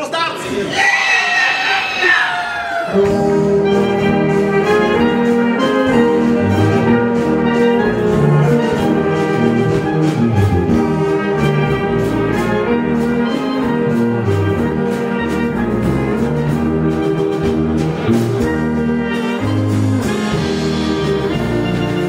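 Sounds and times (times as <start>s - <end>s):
brass band playing: 0.7s - 22.0s.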